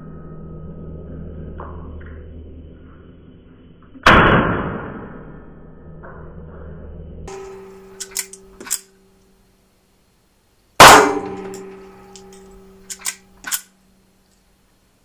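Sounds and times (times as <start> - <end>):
pistol shot: 4.0 - 5.2, 10.8 - 13.6
pistol metallic clicks: 7.3 - 8.9, 10.8 - 13.7.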